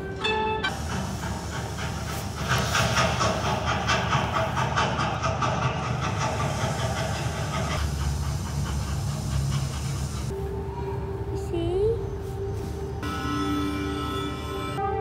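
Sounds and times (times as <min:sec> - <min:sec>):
wheels clattering over rail joints: 0:00.0 - 0:10.3
train rumble with hiss: 0:00.0 - 0:14.7.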